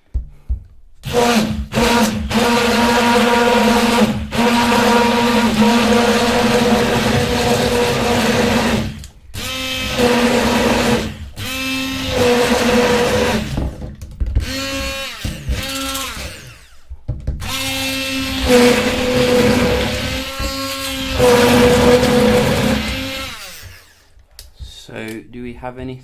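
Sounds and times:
hand blender motor whirring: 1.0s - 24.1s
water churning: 21.0s - 22.9s.

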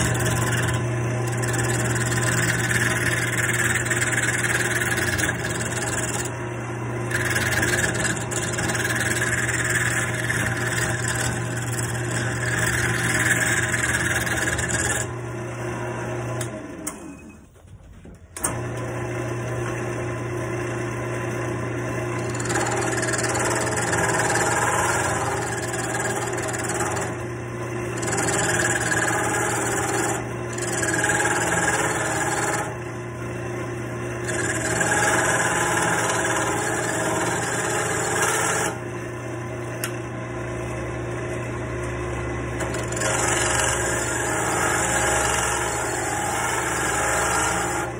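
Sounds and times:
turning tool scraping wood: 0.0s - 6.4s, 7.1s - 15.2s, 22.2s - 27.3s, 27.9s - 32.8s, 34.2s - 38.8s, 42.6s - 47.9s
wood lathe motor hum: 0.0s - 17.0s, 18.4s - 47.9s.

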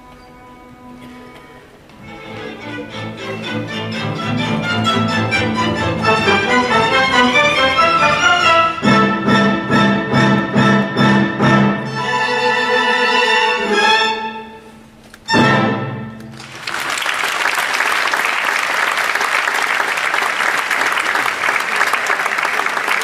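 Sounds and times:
orchestral music with strings: 0.0s - 16.5s
audience applause: 16.3s - 23.0s.

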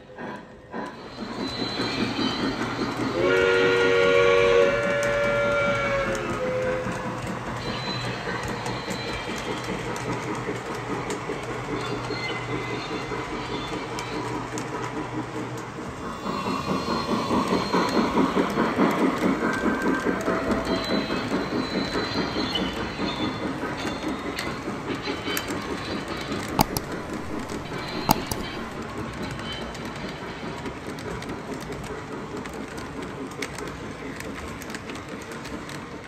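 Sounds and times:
model train wheels clattering: 6.2s - 36.0s
sharp clicks: 26.6s - 28.8s.

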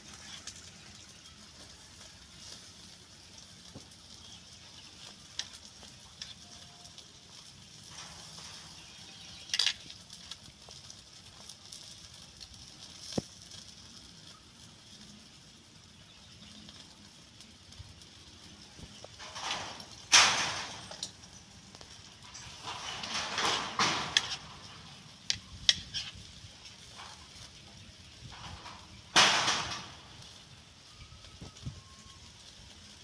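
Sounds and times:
shells clattering in metal basin: 19.0s - 26.2s.

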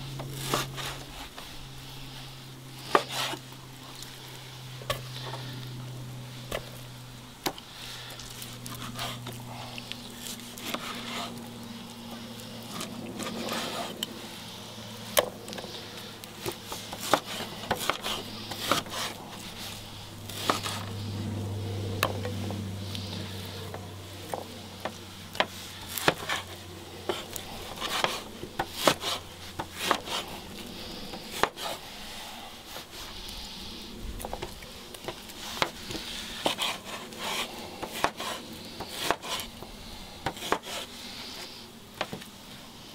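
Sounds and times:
low steady hum: 0.0s - 42.9s
knife cutting on wooden board: 20.3s - 21.0s, 25.3s - 30.3s, 31.1s - 31.8s, 36.4s - 39.5s, 40.2s - 40.9s.

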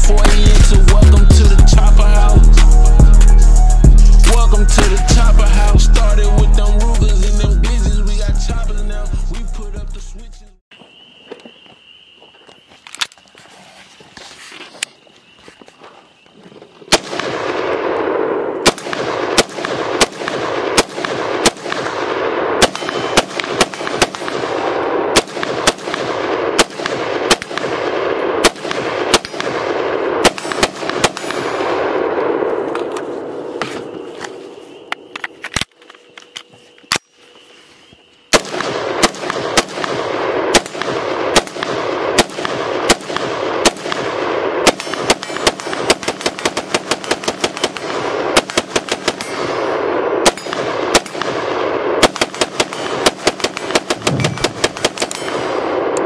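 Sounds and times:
rifle firing rapid shots: 0.0s - 1.2s, 16.9s - 32.5s, 38.3s - 56.0s.

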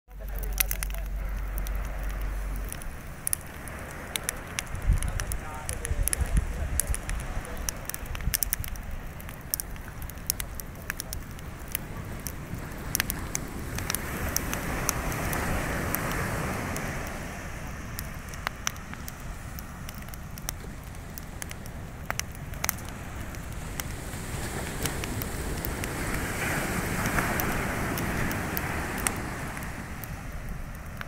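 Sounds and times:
bonfire crackling and popping: 0.1s - 31.0s.

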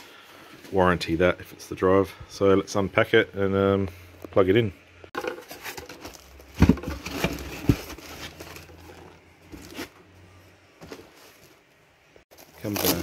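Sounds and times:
plastic packaging rustling: 5.2s - 10.0s, 12.3s - 13.0s.

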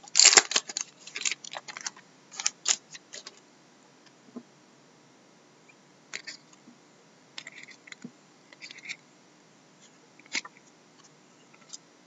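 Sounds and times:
trading cards clicking and rustling: 0.0s - 3.4s.

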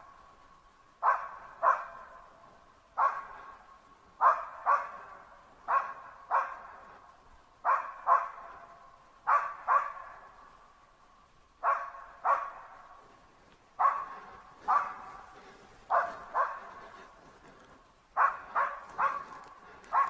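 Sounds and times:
dog barking with echo: 1.0s - 2.4s, 3.0s - 7.0s, 7.6s - 10.6s, 11.6s - 13.1s, 13.8s - 17.4s, 18.2s - 20.0s.

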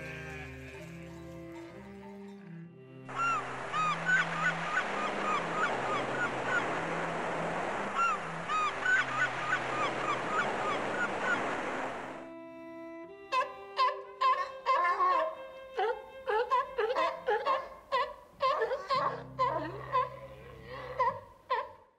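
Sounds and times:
gulls calling: 3.1s - 12.3s.

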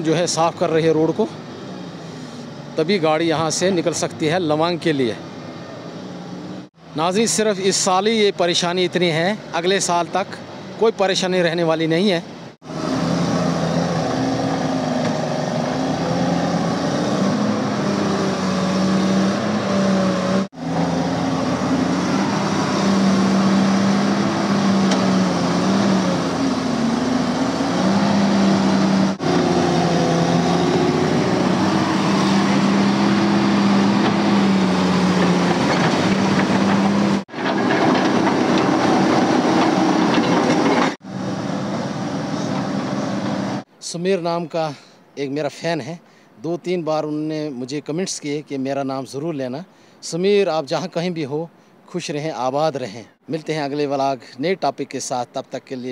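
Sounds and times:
excavator diesel engine under load: 12.6s - 43.7s.

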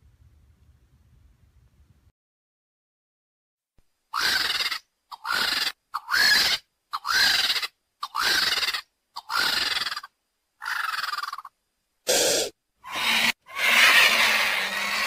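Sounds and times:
vulture hissing squeals: 4.1s - 11.5s, 12.1s - 15.0s.

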